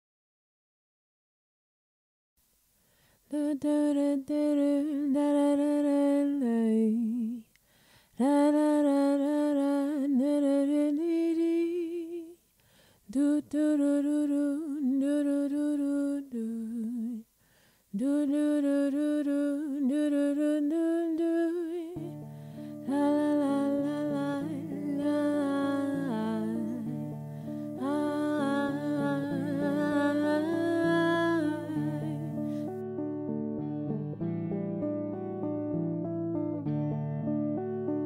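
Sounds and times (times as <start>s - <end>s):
person humming: 22.8s - 27.0s, 27.6s - 32.7s.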